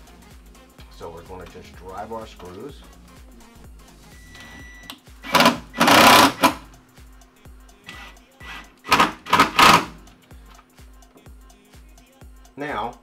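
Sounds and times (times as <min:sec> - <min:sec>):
background music with steady beat: 0:00.0 - 0:13.0
cordless driver driving screws: 0:05.2 - 0:06.6, 0:07.9 - 0:10.0.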